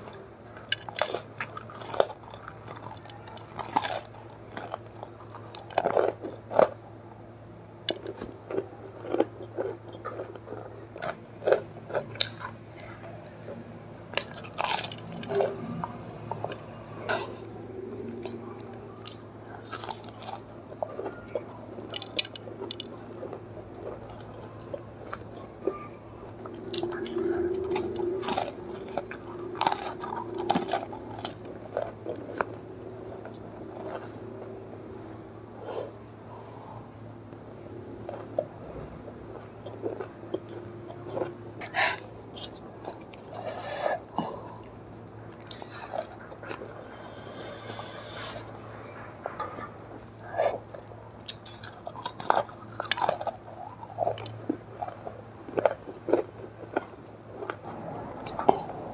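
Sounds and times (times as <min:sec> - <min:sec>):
crisp pastry crunches: 0:00.0 - 0:06.8, 0:07.8 - 0:17.5, 0:18.1 - 0:34.6, 0:50.0 - 0:58.6
wet chewing: 0:00.0 - 0:06.8, 0:07.8 - 0:36.0, 0:39.3 - 0:44.8, 0:45.4 - 0:48.6, 0:49.2 - 0:58.9.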